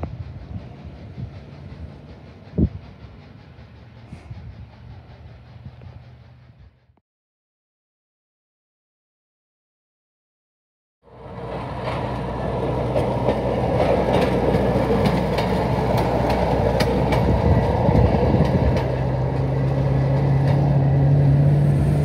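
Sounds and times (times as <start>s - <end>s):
rail motorcar engine hum: 0.0s - 7.0s, 11.0s - 22.0s
wheels clicking over rail joints: 11.2s - 22.0s.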